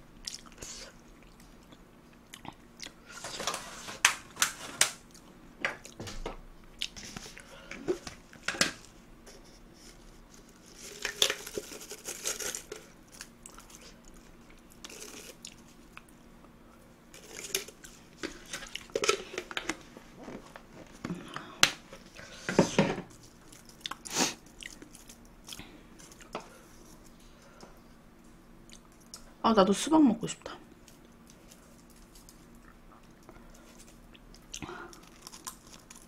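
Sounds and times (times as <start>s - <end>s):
chewing and crunching: 0.2s - 3.3s, 9.9s - 20.4s, 23.1s - 27.1s, 30.7s - 36.0s
plastic cover crinkling: 7.0s - 15.8s, 17.1s - 21.0s, 34.9s - 36.0s.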